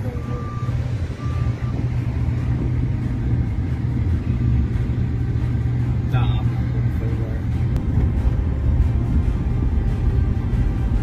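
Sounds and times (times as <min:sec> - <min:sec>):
faint high beep: 0:00.0 - 0:01.9
vehicle engine and tyres rumbling: 0:00.0 - 0:11.0.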